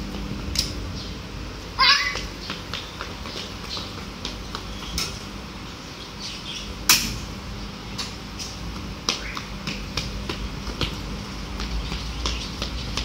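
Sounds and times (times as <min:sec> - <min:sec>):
children's footsteps on tiles: 0:01.8 - 0:05.5, 0:08.1 - 0:13.0.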